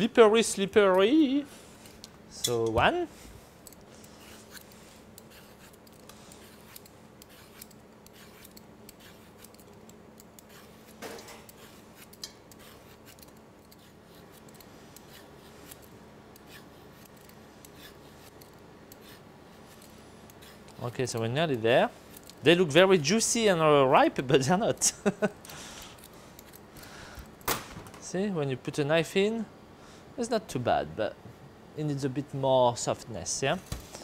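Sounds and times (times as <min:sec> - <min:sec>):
peeler scraping fruit skin: 0:04.0 - 0:22.9.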